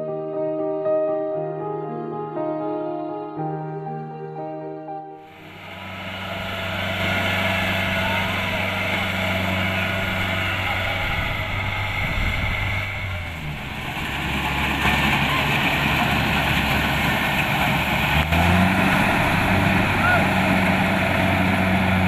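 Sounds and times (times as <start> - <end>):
combine harvester diesel engine: 5.3 - 22.0.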